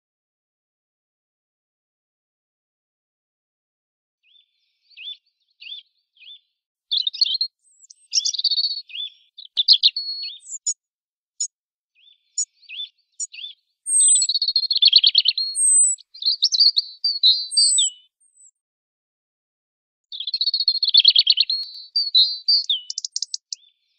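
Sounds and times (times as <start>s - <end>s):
robin singing: 4.3s - 10.8s, 11.4s - 18.6s, 20.1s - 23.7s.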